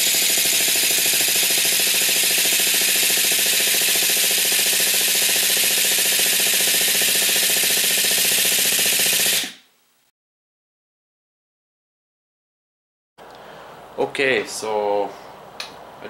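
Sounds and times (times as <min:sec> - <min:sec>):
electric starter cranking engine: 0:00.0 - 0:09.6.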